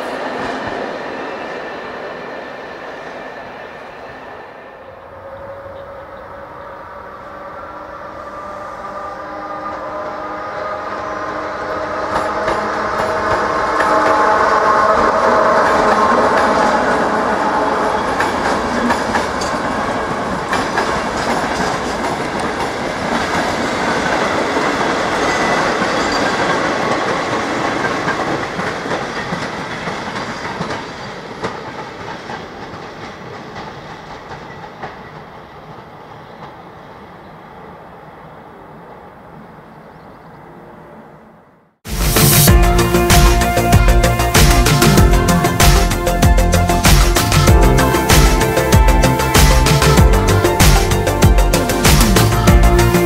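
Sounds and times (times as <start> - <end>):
electric locomotive whine: 0.0 - 53.0.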